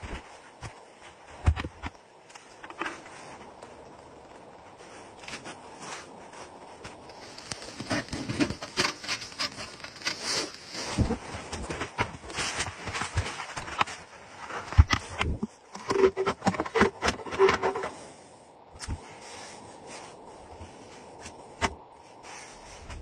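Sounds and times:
clothing rustling: 2.1 - 18.0, 18.8 - 23.0
snow crunching: 2.4 - 18.3, 18.9 - 23.0
scrapes and knocks on wood: 6.9 - 18.0.

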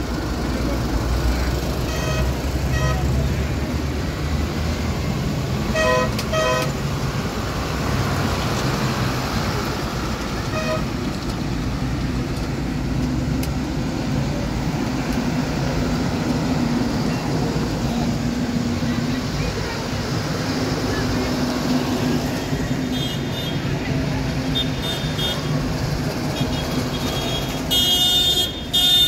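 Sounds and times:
tractor engines passing: 0.0 - 29.0
horn tooting: 1.8 - 3.2, 5.7 - 6.8, 10.5 - 11.0, 26.3 - 29.0.

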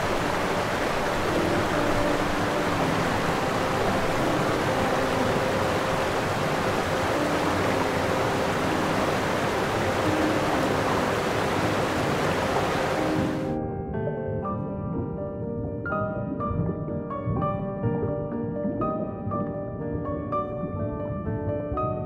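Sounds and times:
rushing underwater noise: 0.0 - 13.6, 14.8 - 21.7
faint low tones: 13.8 - 21.7.

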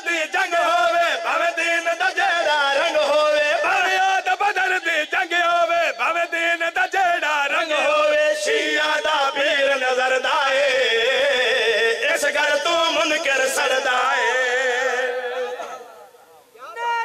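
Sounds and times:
man chanting through microphone: 0.0 - 17.0.

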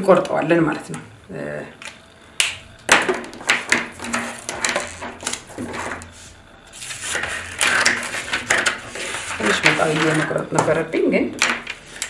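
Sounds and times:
paper rustling: 3.5 - 10.4
drafting tools clicking and tapping: 7.2 - 10.8.

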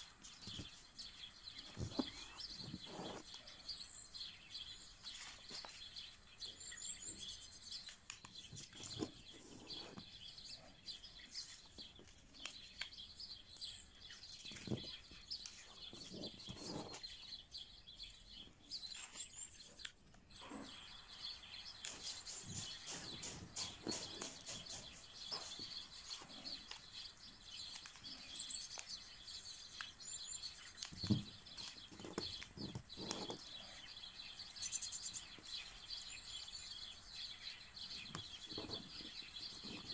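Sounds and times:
paper rustling and crackling: 7.9 - 10.1, 30.5 - 33.6.

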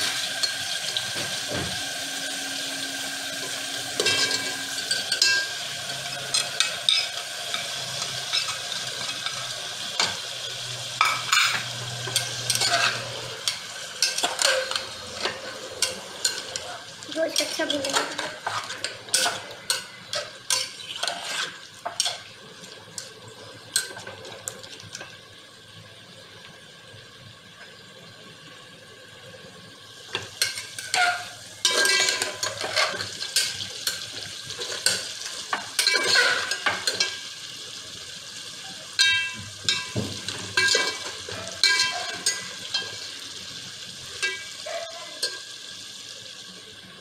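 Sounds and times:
onions sizzling in hot oil: 0.0 - 47.0
metal spoon scraping a pot: 11.3 - 16.7, 17.3 - 22.3, 30.4 - 35.1, 35.8 - 37.2.

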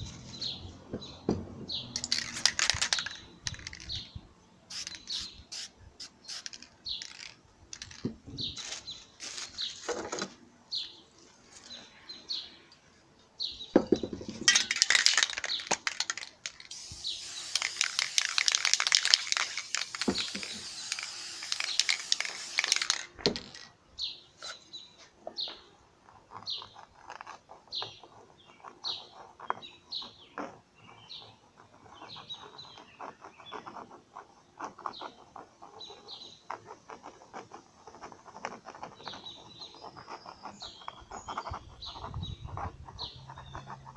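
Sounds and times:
bird chirping: 0.0 - 10.0, 10.7 - 23.0, 23.9 - 43.9
spray-paint can hissing: 1.9 - 3.9, 4.7 - 7.4, 15.9 - 23.1.

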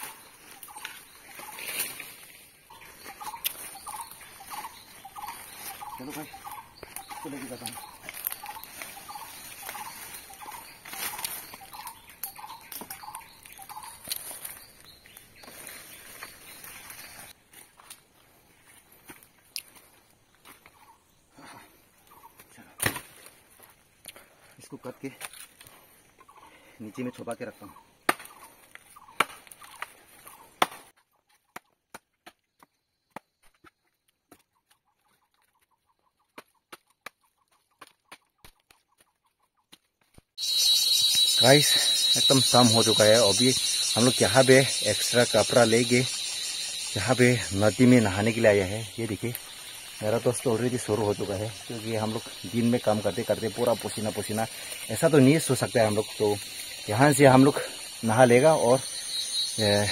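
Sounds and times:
footsteps crunching dry leaves: 0.0 - 20.6
twigs snapping: 3.1 - 17.0
machete chopping into wood: 22.8 - 23.2, 28.0 - 28.4, 30.6 - 30.9.

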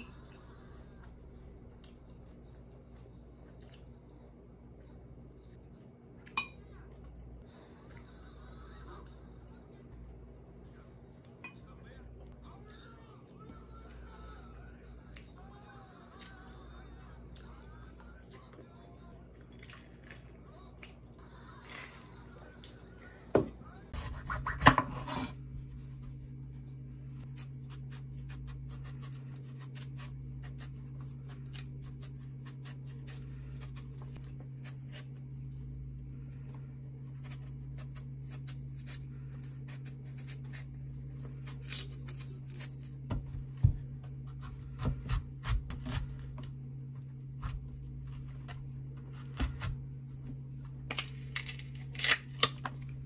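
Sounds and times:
steady low hum: 0.0 - 53.0
knife scraping peach skin: 27.2 - 35.6, 37.0 - 43.0.

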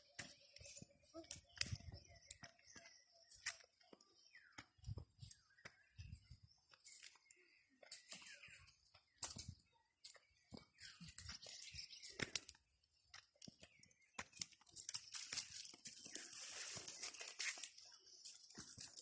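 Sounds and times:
footsteps crunching on dry leaves: 14.3 - 19.0.

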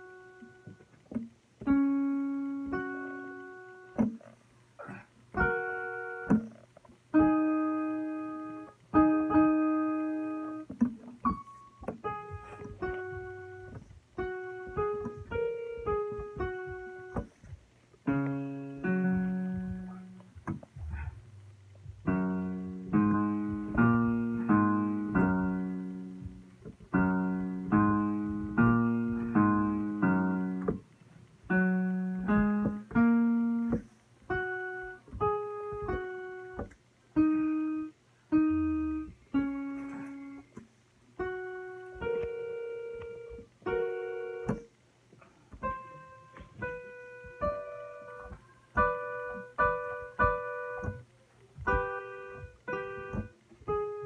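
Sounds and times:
piano music: 0.0 - 4.3, 5.3 - 40.6, 41.2 - 44.8, 45.5 - 54.0.

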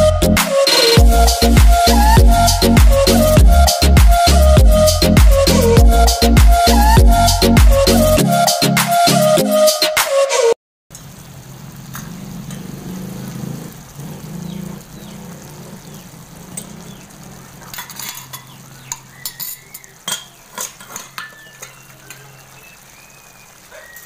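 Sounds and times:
sauce popping and spluttering: 10.9 - 24.0.

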